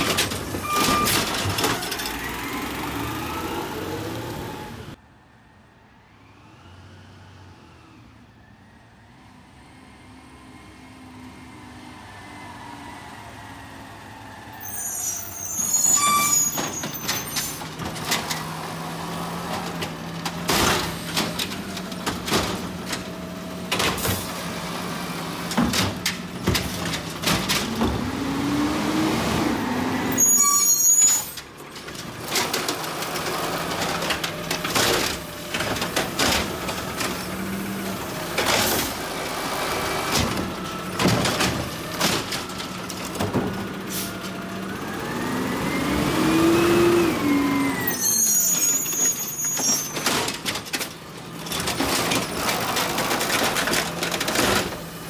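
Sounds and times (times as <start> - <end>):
garbage truck engine: 0.0 - 5.0, 6.3 - 55.0
knocks and clanks: 19.4 - 24.4, 25.4 - 28.3, 40.0 - 43.8, 49.5 - 54.9.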